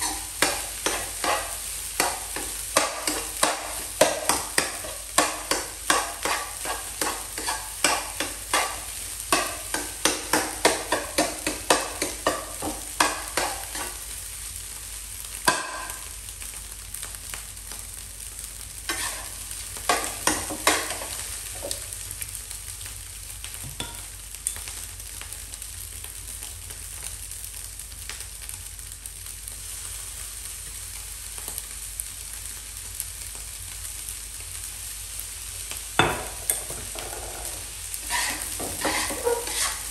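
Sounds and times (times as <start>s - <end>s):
spoon scraping rice in pan: 0.0s - 14.0s, 18.9s - 21.8s, 36.4s - 39.9s
rice sizzling: 0.0s - 39.9s
knock on pan: 36.0s - 37.4s.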